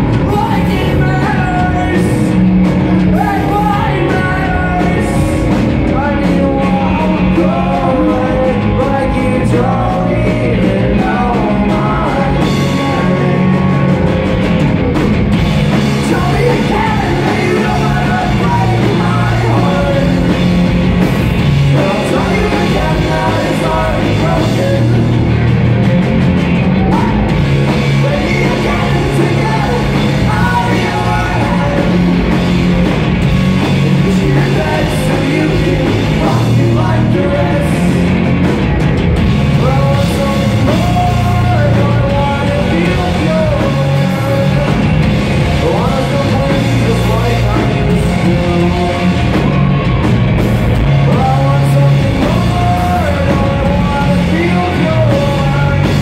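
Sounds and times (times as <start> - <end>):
bass guitar: 0.0 - 56.0
distorted electric guitars: 0.0 - 56.0
drums: 0.0 - 56.0.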